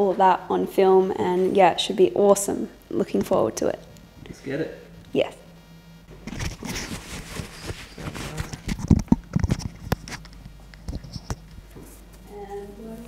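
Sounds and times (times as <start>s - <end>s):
rustling: 6.3s - 12.4s.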